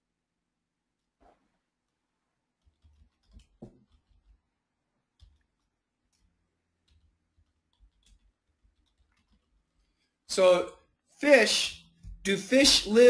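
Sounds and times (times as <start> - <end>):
keyboard and mouse clicks: 2.6 - 4.4, 5.1 - 10.0.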